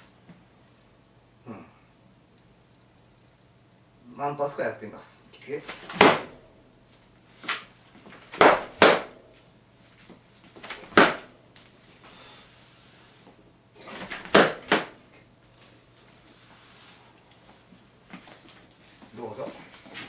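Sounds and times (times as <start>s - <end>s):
wooden swords clacking: 5.7s - 6.3s, 8.3s - 9.2s, 10.6s - 11.3s.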